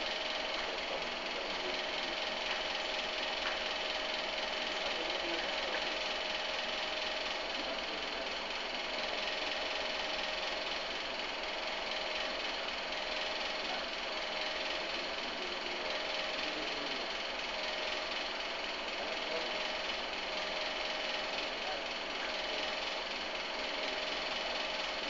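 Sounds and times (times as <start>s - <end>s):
steady machine hum with hiss: 0.0s - 25.0s.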